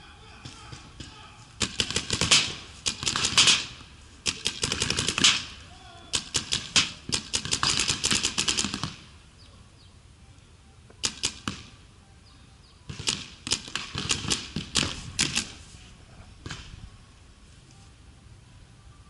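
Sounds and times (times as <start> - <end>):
paintball markers firing: 0.4 - 9.1, 11.0 - 11.8, 12.9 - 15.6.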